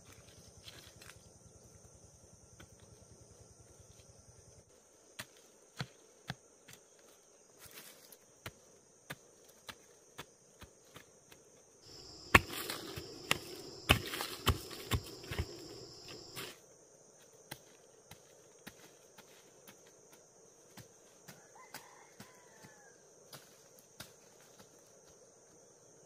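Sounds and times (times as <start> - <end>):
high-pitched insect chorus: 11.8 - 26.0
rustling: 11.9 - 16.5.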